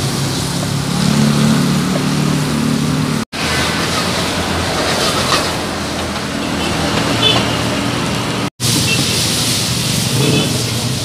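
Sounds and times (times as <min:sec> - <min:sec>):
gas burner roaring: 0:00.0 - 0:11.0
food sizzling in a pan: 0:08.6 - 0:11.0.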